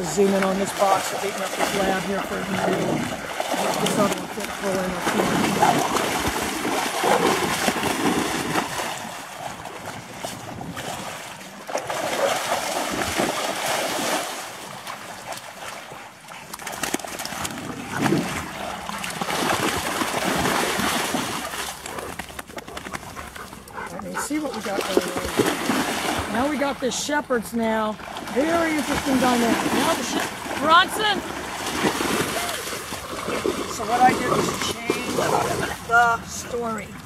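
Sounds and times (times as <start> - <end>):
dogs splashing in water: 0.0 - 37.0.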